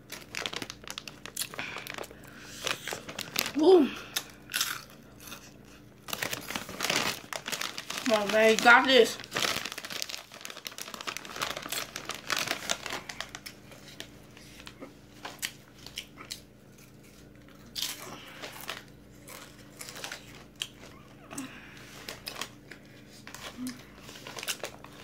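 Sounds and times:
chip bag crinkling: 0.0s - 21.1s, 21.8s - 25.0s
chips crunching while chewed: 0.0s - 25.0s.

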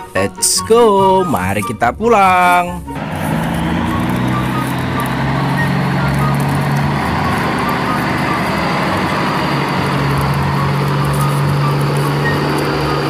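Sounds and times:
truck engine running: 2.9s - 13.0s.

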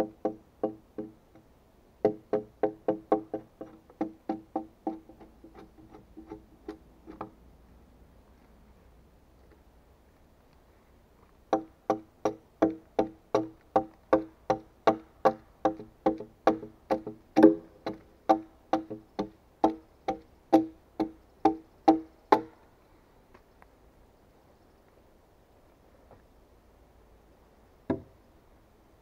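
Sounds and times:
hammering on a log: 0.0s - 7.4s, 11.5s - 22.6s, 27.9s - 28.1s.

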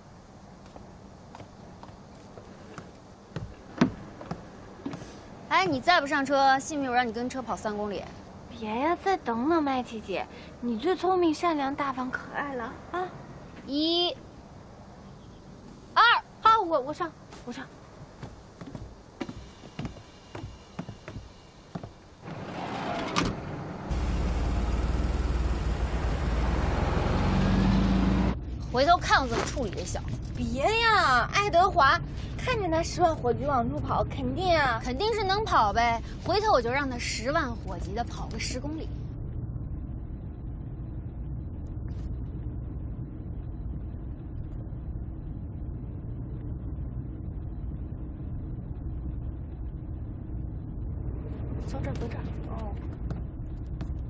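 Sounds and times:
footsteps climbing bus steps: 0.6s - 5.2s, 17.3s - 22.2s
bus engine rumbling: 15.8s - 54.0s
bus door shutting: 22.2s - 24.8s.

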